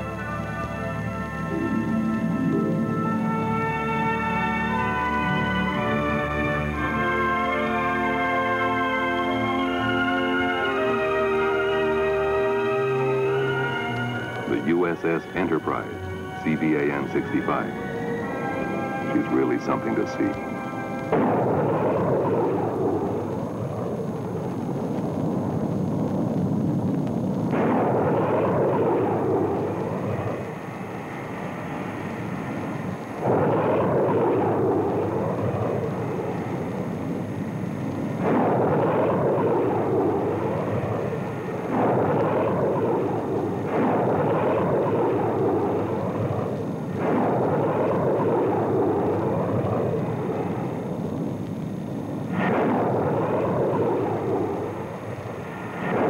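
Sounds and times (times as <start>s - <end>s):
jet aircraft roar: 0.0s - 56.0s.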